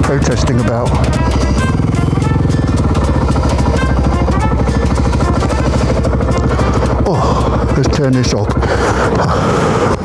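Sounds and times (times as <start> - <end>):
background music: 0.0 - 10.0
motorcycle engine running: 0.0 - 10.0.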